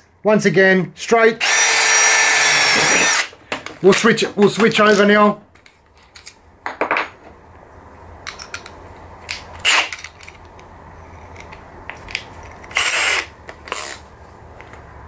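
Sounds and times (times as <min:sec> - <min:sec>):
drill chuck clicks and scrapes: 0:01.4 - 0:03.3, 0:09.6 - 0:10.6, 0:11.3 - 0:14.1.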